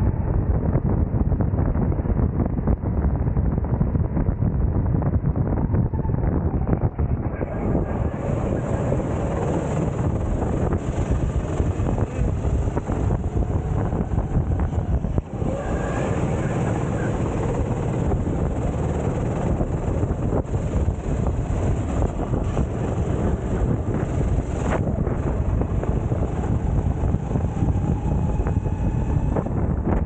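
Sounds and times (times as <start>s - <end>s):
wind buffeting microphone: 0.0s - 30.0s
go-kart engine running: 7.4s - 30.0s.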